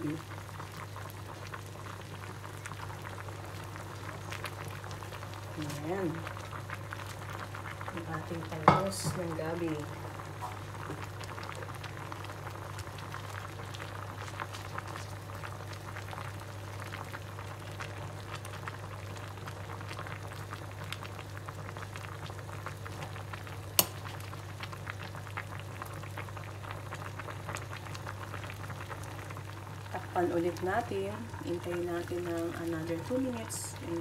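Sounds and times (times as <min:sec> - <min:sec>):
broth bubbling and popping: 0:00.0 - 0:34.0
low steady hum: 0:22.6 - 0:34.0.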